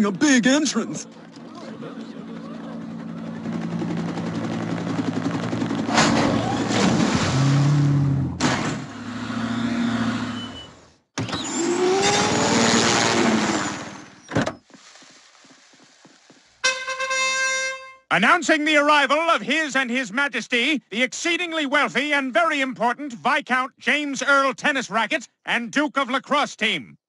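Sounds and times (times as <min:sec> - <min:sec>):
vehicle engine running: 0:00.1 - 0:06.0.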